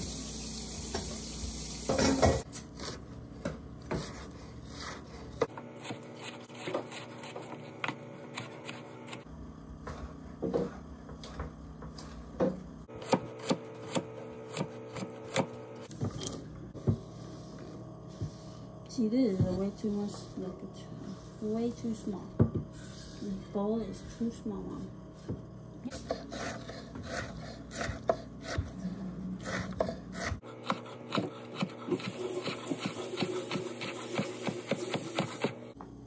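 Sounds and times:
knife chopping on wooden board: 0:12.9 - 0:15.6, 0:26.0 - 0:28.7, 0:29.4 - 0:35.6.

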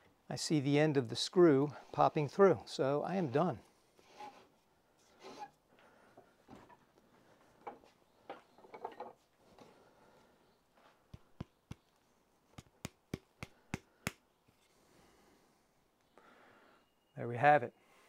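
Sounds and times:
hand auger rasping in wood: 0:04.0 - 0:04.5.

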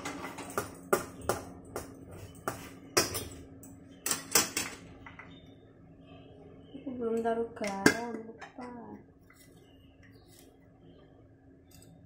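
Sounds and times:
utensils clinking on a countertop: 0:00.0 - 0:05.2
faint steady hum: 0:00.0 - 0:12.0.

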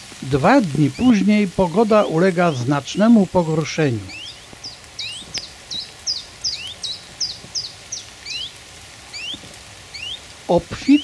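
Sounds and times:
lower rising bird call: 0:00.7 - 0:11.0
bird singing short high notes: 0:09.1 - 0:10.2.

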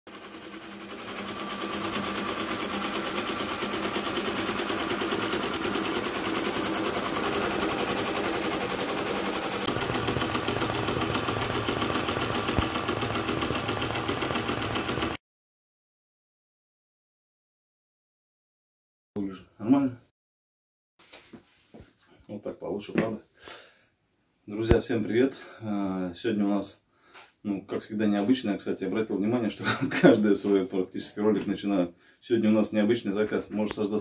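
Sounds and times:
embroidery machine stitching: 0:00.1 - 0:15.2.

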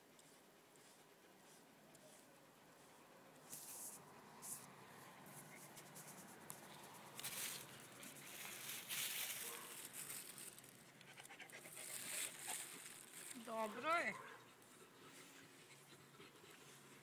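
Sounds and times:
plastic bag rustling and crinkling: 0:07.2 - 0:10.8, 0:11.7 - 0:13.7.

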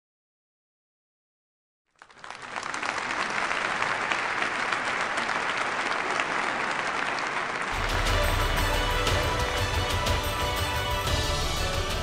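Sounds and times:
audience applauding: 0:01.9 - 0:12.0
music: 0:07.8 - 0:12.0.

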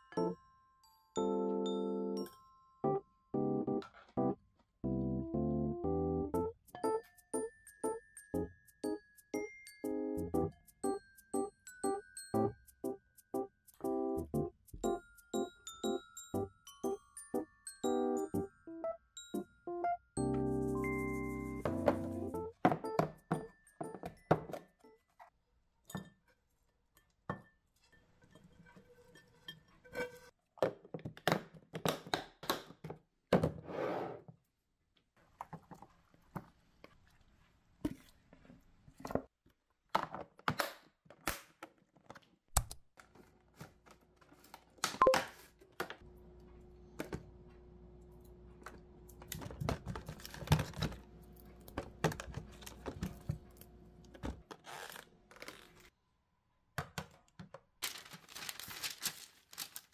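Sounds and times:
plastic punnet crinkling: 0:57.8 - 0:59.9.

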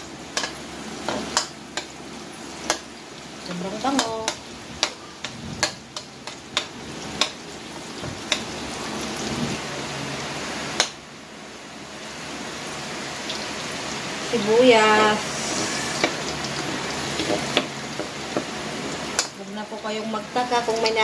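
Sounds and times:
garlic sizzling in oil: 0:00.0 - 0:21.0
metal spatula scraping pan: 0:15.0 - 0:17.5.

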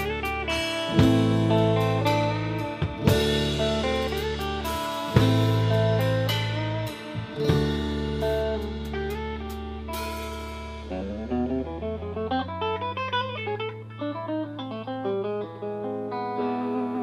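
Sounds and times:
held bass note: 0:00.0 - 0:12.9
fast picked guitar notes: 0:00.0 - 0:17.0.

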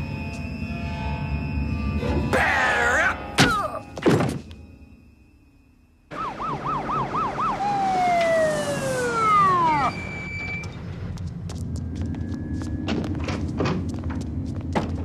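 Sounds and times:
police siren yelping and wailing: 0:06.1 - 0:10.3.

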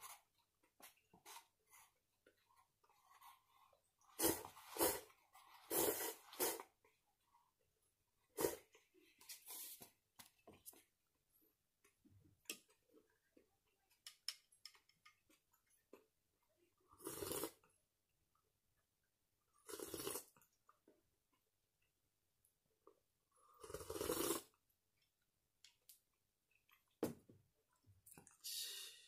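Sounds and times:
person slurping noodles: 0:03.2 - 0:06.8, 0:08.3 - 0:08.8, 0:16.9 - 0:17.7, 0:19.6 - 0:20.4, 0:23.4 - 0:24.6.

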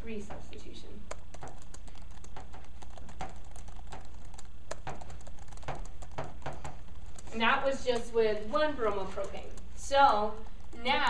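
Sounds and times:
chalk tapping on a chalkboard: 0:01.1 - 0:09.8.

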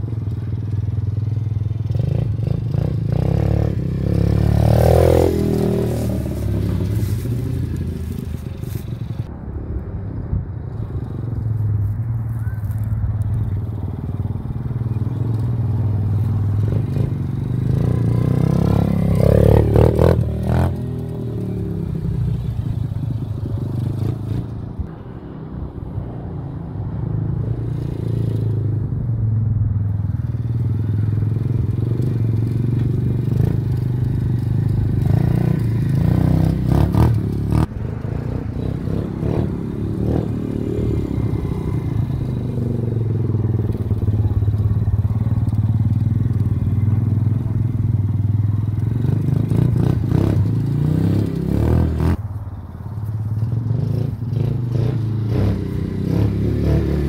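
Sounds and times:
dirt bike engine revving: 0:01.8 - 0:08.3, 0:16.4 - 0:24.5, 0:53.8 - 0:57.0.

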